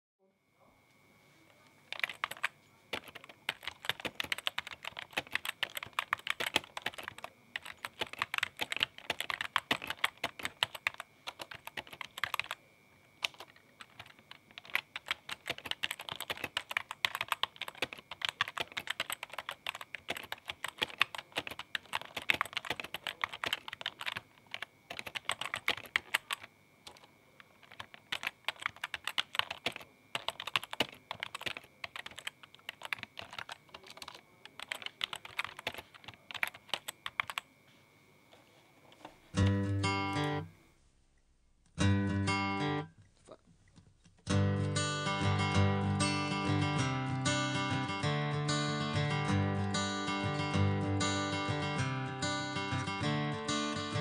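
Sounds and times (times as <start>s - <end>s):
computer keyboard typing: 1.9s - 12.6s, 13.2s - 37.5s.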